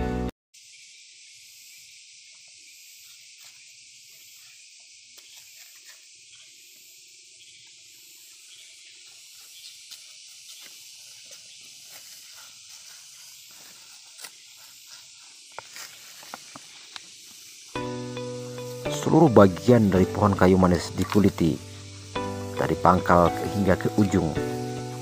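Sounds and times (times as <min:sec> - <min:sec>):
high hiss of outdoor ambience: 0:00.6 - 0:25.0
knife scraping bark: 0:03.0 - 0:06.6, 0:09.0 - 0:19.8, 0:20.6 - 0:25.0.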